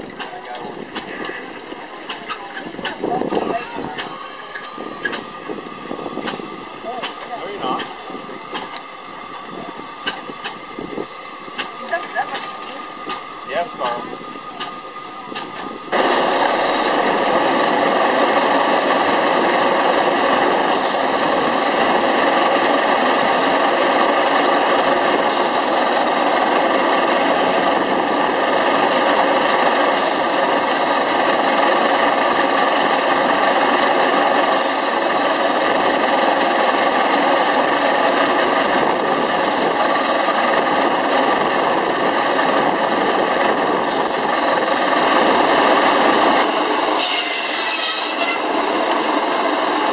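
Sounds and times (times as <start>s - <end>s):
steam engine clatter and hiss: 0.0s - 49.9s.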